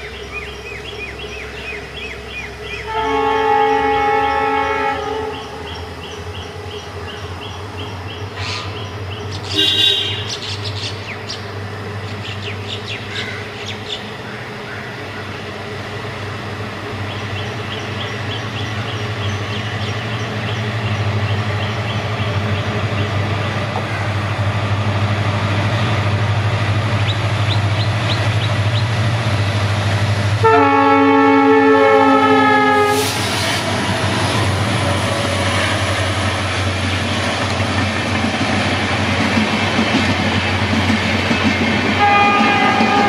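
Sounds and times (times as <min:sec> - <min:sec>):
birds chirping and trilling: 0:00.0 - 0:02.9, 0:05.3 - 0:15.5, 0:17.0 - 0:24.5, 0:26.9 - 0:29.0
diesel locomotives droning: 0:00.0 - 0:43.0.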